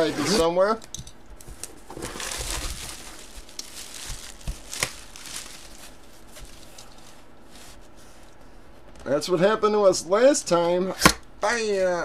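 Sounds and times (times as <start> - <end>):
hands rubbing on cardboard: 5.7 - 8.8.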